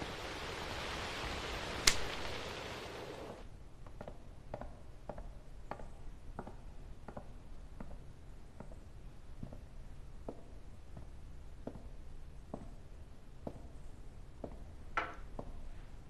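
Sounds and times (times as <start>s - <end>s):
steady hiss: 0.0s - 3.5s
slow footsteps: 0.0s - 4.2s, 7.1s - 16.0s
sharp click: 1.8s - 2.1s.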